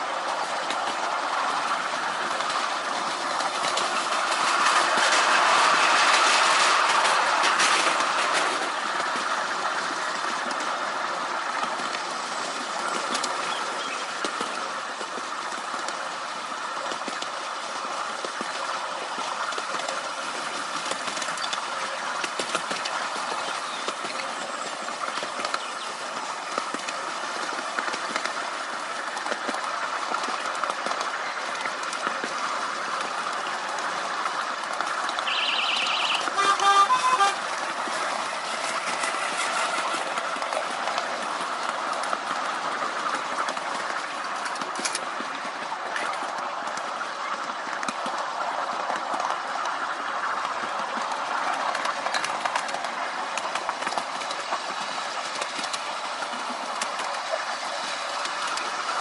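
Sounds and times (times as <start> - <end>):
small train wheels rumbling and clicking: 0.0 - 59.0
locomotive horn toots: 35.3 - 37.7.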